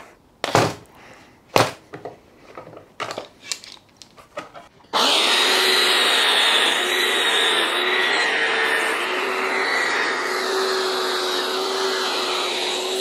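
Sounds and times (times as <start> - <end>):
belt sander sanding plywood: 5.0 - 13.0.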